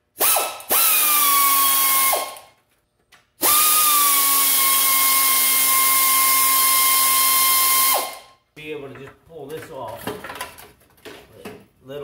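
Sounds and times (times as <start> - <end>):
air ratchet whining: 0.2 - 2.5, 3.4 - 8.4.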